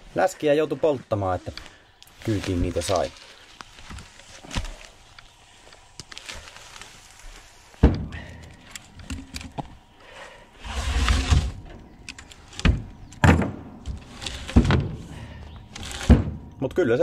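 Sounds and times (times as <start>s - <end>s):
scraping and rustling: 1.1s - 13.2s, 13.8s - 16.5s
logs thudding: 2.3s - 5.0s, 7.8s - 9.8s, 12.4s - 16.5s.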